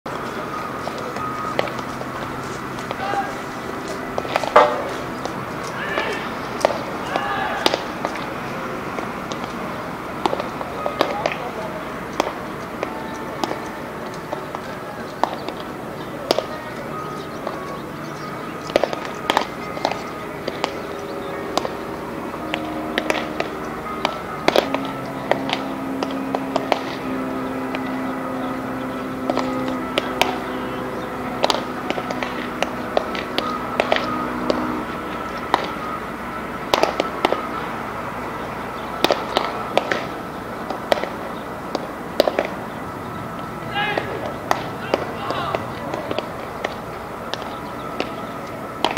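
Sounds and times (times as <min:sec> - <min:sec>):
background music: 0:00.1 - 0:48.9
baseballs smacking into gloves: 0:04.1 - 0:09.6, 0:10.2 - 0:16.6, 0:18.6 - 0:27.1, 0:29.2 - 0:36.0, 0:36.6 - 0:37.6, 0:39.0 - 0:42.6, 0:43.4 - 0:48.2.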